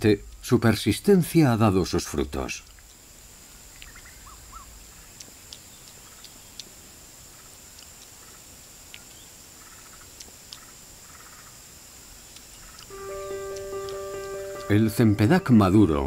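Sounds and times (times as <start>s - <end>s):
sharp ticks: 0.2s - 0.5s, 4.8s - 11.6s, 12.3s - 15.7s
high-pitched insect drone: 9.2s - 16.0s.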